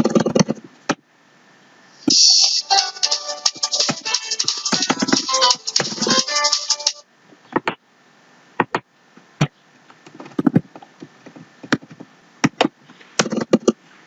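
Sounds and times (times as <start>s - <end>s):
snatch of music: 2.1s - 7.0s
keyboard and mouse clicks: 10.0s - 13.8s.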